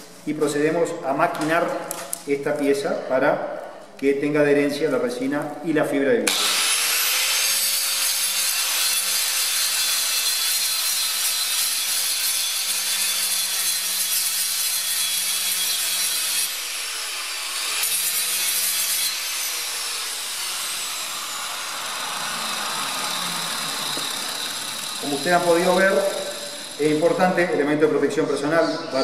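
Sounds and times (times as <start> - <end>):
angle grinder sanding fiberglass: 6.3 - 27.6
motor winding down whine: 20.6 - 27.1.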